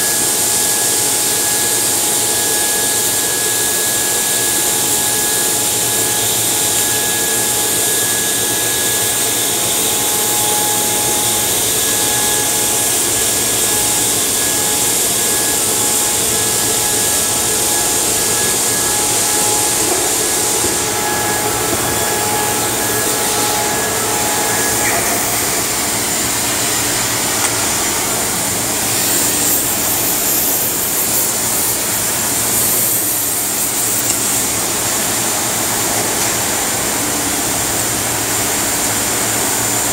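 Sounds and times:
cutting torch hissing: 0.0 - 39.9
faint steady whine: 0.0 - 39.9.

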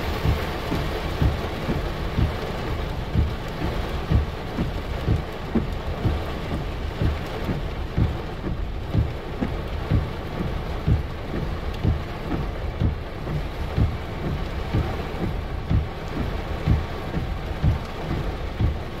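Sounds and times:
heavy rain pouring: 0.0 - 19.0
low thumps near microphone: 0.0 - 19.0.

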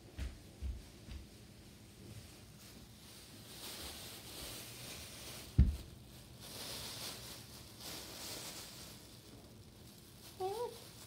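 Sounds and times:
plastic bags rustling: 0.9 - 11.0
dull thump: 5.6 - 5.8.

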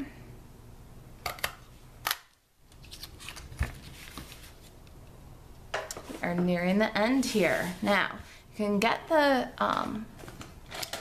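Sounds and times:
paper rustling: 2.7 - 4.8.

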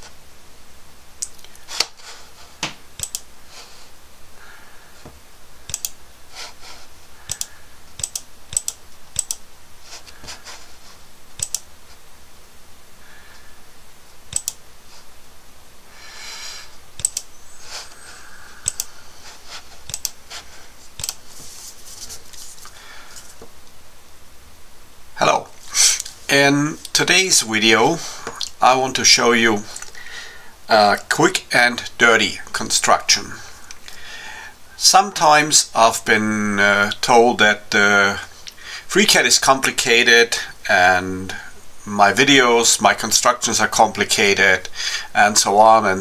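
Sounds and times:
mouse and keyboard clicks: 3.0 - 3.3, 5.7 - 6.0, 7.3 - 9.4, 11.4 - 11.7, 14.3 - 14.6, 17.0 - 17.3, 18.6 - 18.9, 21.0 - 21.2.

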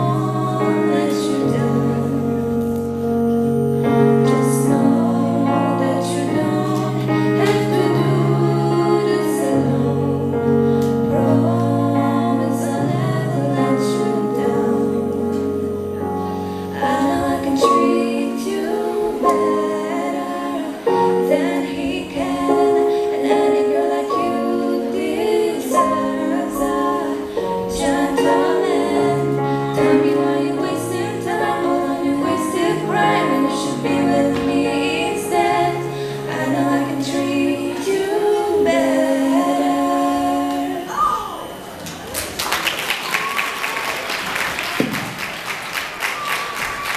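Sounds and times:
girls singing pop song: 0.0 - 2.8, 4.1 - 41.6
backing music: 0.0 - 40.9
audience applause: 41.8 - 46.9.

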